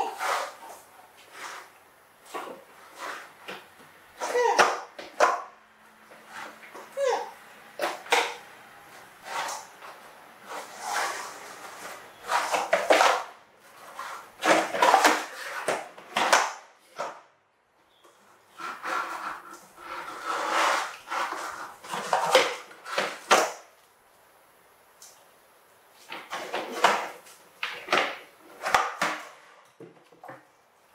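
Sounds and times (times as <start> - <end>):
plastic toy truck clattering on floor: 12.3 - 17.2, 18.6 - 23.6, 26.1 - 30.0.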